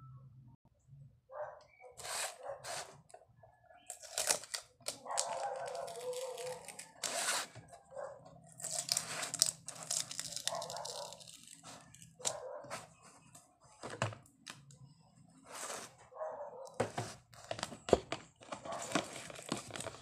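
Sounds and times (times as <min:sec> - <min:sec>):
tearing and crinkling packaging: 0:03.9 - 0:07.6, 0:08.5 - 0:12.4, 0:18.4 - 0:20.0.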